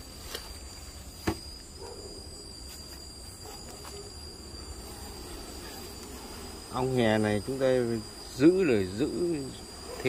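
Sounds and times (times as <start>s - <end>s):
high-pitched insect tone: 0.0s - 10.0s
bees humming: 0.6s - 10.0s.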